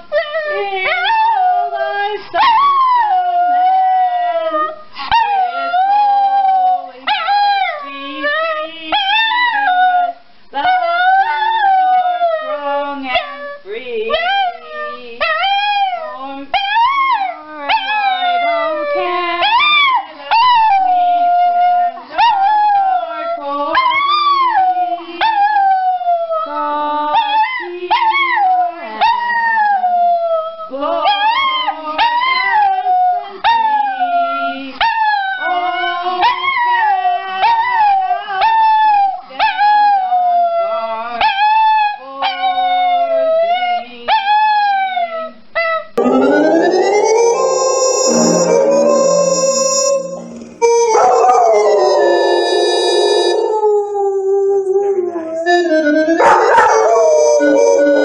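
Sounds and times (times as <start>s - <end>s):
steady tune of held notes: 46.0s - 52.0s
dog howling in long wails: 46.0s - 58.0s.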